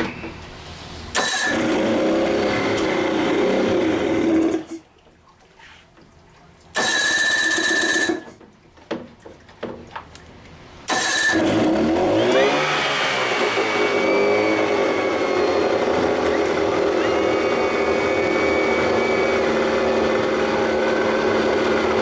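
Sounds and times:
outboard engine cranking: 1.1s - 4.8s, 6.7s - 8.4s, 10.9s - 22.0s
outboard engine running: 1.2s - 4.8s, 10.9s - 22.0s.

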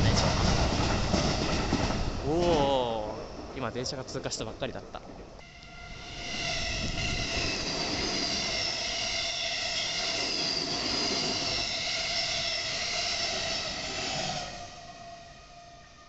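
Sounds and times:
train rumbling over steel bridge: 0.0s - 16.0s
high-pitched whining tones: 5.4s - 16.0s.

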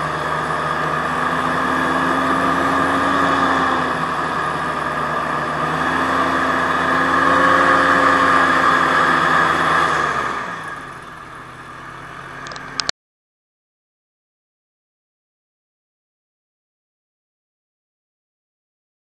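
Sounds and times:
hovercraft engine running: 0.0s - 12.9s
short clicks: 12.4s - 12.9s.

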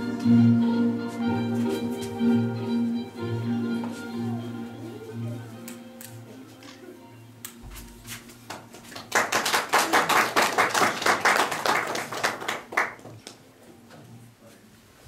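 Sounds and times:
audience applauding: 8.5s - 13.3s.

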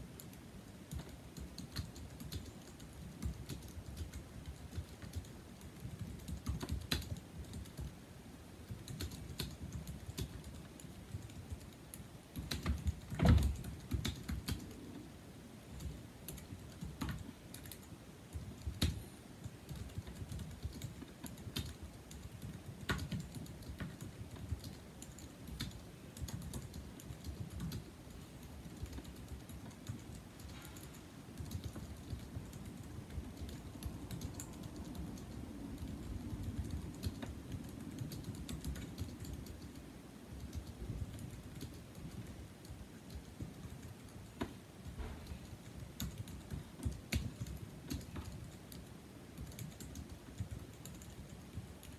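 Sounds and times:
keyboard keys clicking: 0.2s - 8.0s, 8.6s - 15.0s, 15.8s - 51.9s
thump on keyboard: 13.2s - 13.6s, 45.0s - 45.4s.

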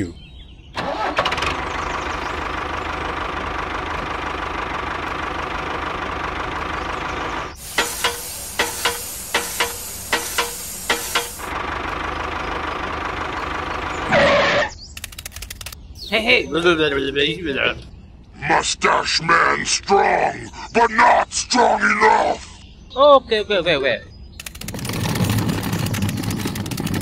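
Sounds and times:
tractor diesel engine running: 0.8s - 15.8s, 24.4s - 27.0s
hiss: 7.6s - 11.5s.

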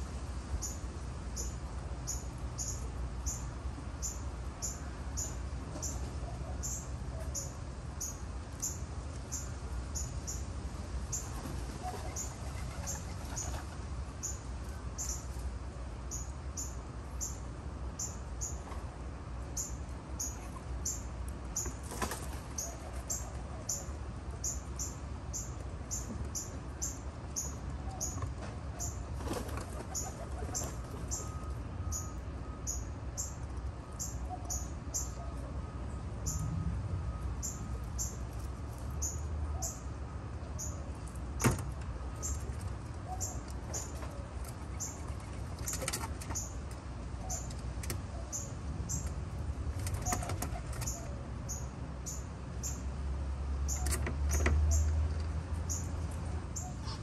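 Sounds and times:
dove wings flapping: 29.2s - 31.0s.

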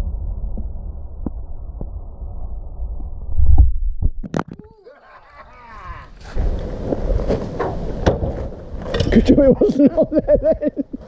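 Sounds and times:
wind rumble on microphone: 0.0s - 4.2s.

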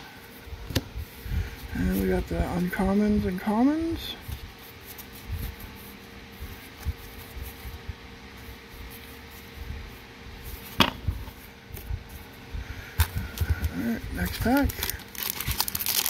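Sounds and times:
faint steady hum: 0.0s - 16.0s
cards being fanned through: 13.0s - 16.0s.

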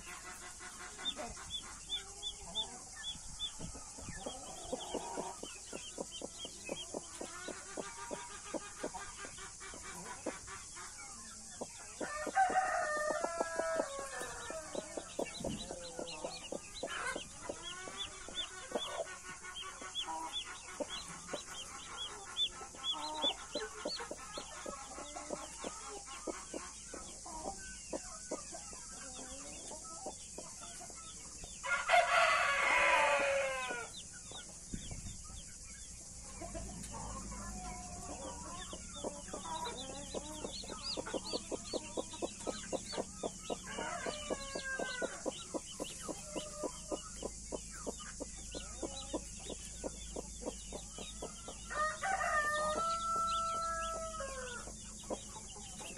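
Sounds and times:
chicks peeping: 0.0s - 55.9s
rooster crowing: 12.0s - 18.0s, 31.6s - 34.0s, 43.5s - 45.4s, 51.2s - 54.8s.

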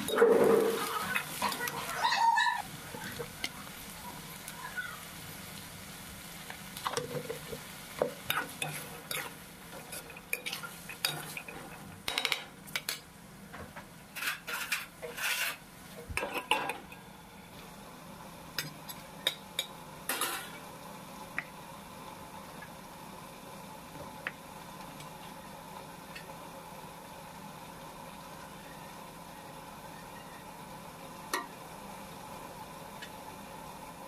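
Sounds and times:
steel spatula scraping a pan: 0.0s - 2.4s, 8.2s - 11.8s, 14.1s - 15.6s
peas frying: 0.0s - 34.0s.

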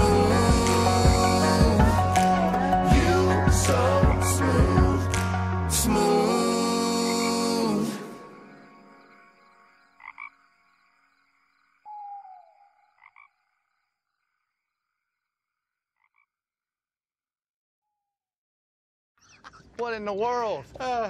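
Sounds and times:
background music: 0.0s - 10.4s.

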